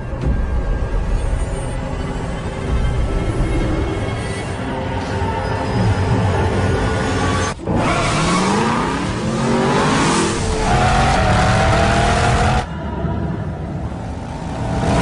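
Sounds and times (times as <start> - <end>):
car engine revving: 7.6 - 12.7.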